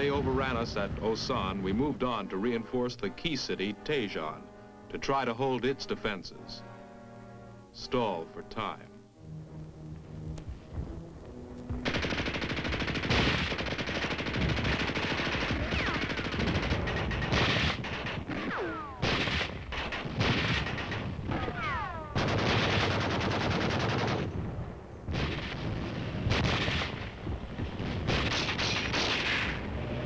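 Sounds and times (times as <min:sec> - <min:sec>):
rifles and machine guns firing: 0:00.0 - 0:02.2, 0:11.6 - 0:30.0.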